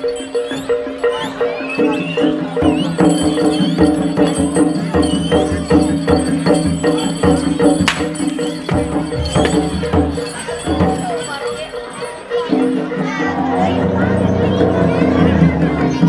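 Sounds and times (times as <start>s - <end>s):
sustained ringing tones: 2.4s - 13.3s.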